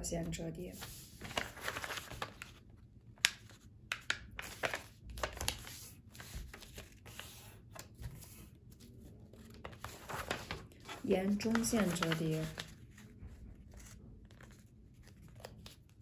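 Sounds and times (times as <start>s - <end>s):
paper rustling and crinkling: 0.7s - 16.0s.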